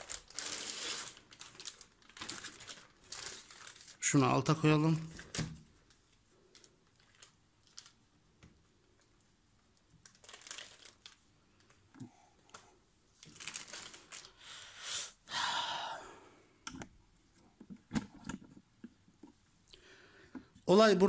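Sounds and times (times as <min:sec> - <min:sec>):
plastic packing rustling and crinkling: 0:00.0 - 0:14.7.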